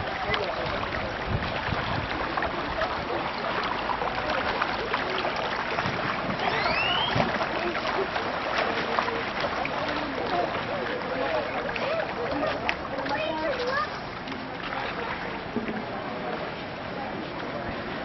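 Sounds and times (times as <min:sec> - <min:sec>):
small splashes: 0:00.0 - 0:18.0
water noise: 0:00.0 - 0:18.0
short rising whistle: 0:06.4 - 0:07.3.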